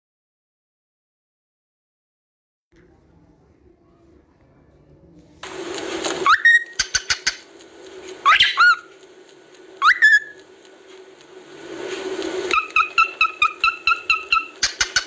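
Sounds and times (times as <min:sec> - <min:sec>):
cockatoo rising whistles: 0:06.2 - 0:07.2, 0:08.2 - 0:08.9, 0:09.8 - 0:10.4, 0:12.5 - 0:15.0
cockatoo screeching: 0:06.2 - 0:07.5, 0:08.2 - 0:08.9, 0:09.8 - 0:10.4, 0:12.5 - 0:15.0.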